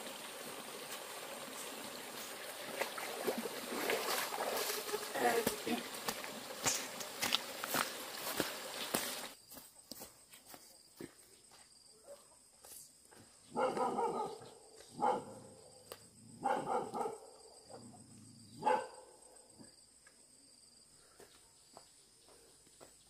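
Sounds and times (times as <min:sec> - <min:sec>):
dog barking: 0:13.5 - 0:15.6, 0:16.4 - 0:17.9, 0:18.6 - 0:19.2.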